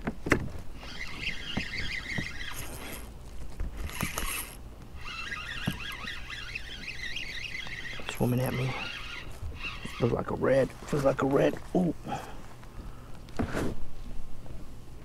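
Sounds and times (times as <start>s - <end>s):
fishing reel whirring: 0.8s - 10.6s.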